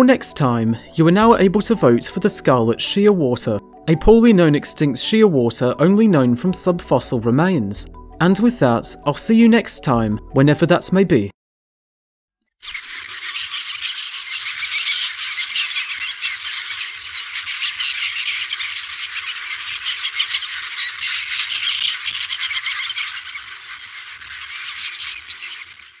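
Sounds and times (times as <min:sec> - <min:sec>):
chorus of calling animals: 0:12.6 - 0:26.0.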